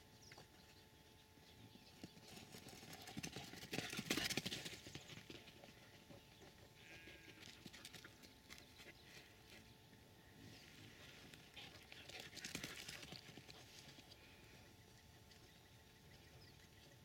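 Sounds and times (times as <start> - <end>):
dogs running footfalls: 2.1 - 6.2, 11.7 - 14.1.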